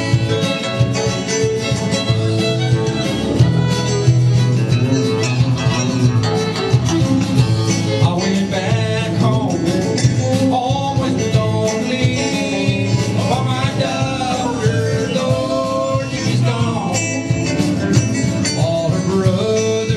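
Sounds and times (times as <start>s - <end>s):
bass guitar: 0.0s - 19.9s
drums: 0.0s - 19.9s
electric and acoustic guitars: 0.0s - 19.9s
man singing: 7.9s - 17.6s, 18.2s - 19.9s.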